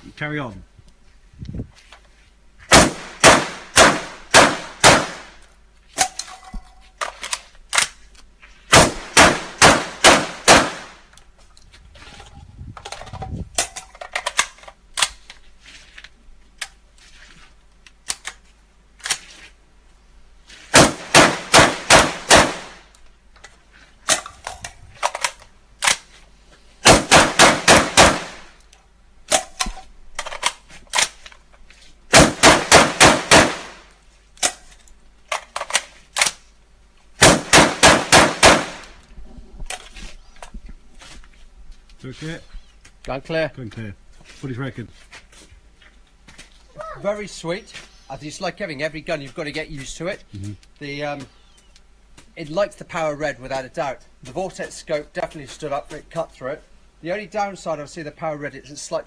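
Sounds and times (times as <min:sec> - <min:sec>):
shotgun firing rapidly: 0:02.7 - 0:05.3, 0:08.7 - 0:11.0, 0:20.8 - 0:22.8, 0:26.9 - 0:28.5, 0:32.1 - 0:33.8, 0:37.2 - 0:38.9
magazine change clanks and clicks: 0:05.4 - 0:08.3, 0:12.8 - 0:15.4, 0:18.0 - 0:18.4, 0:24.1 - 0:26.1, 0:29.3 - 0:31.4, 0:34.4 - 0:36.4.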